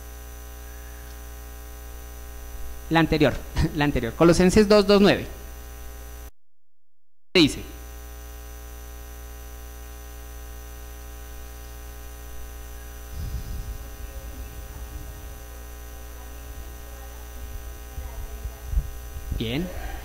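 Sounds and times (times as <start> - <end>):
electrical mains hum: 0.0 - 6.3, 7.4 - 20.0
irregular low rumbling: 13.0 - 20.0.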